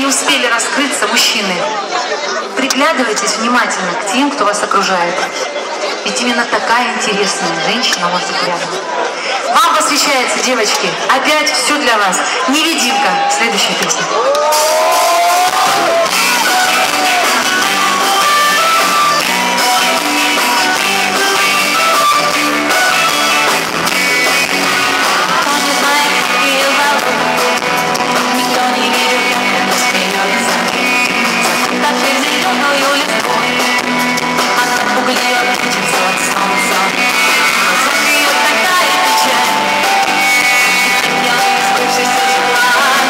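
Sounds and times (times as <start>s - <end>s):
live rock band playing: 14.5s - 43.0s.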